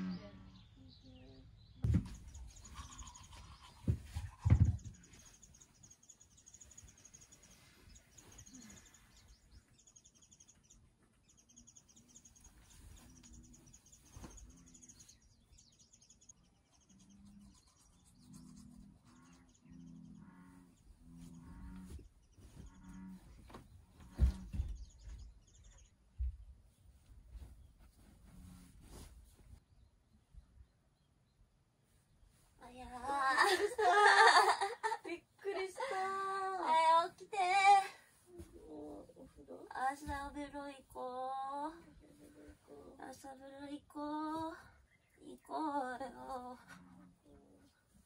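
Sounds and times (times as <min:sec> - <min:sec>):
small birds chirping: 0:00.0 - 0:48.0
loud thumps and knocks: 0:01.8 - 0:02.4.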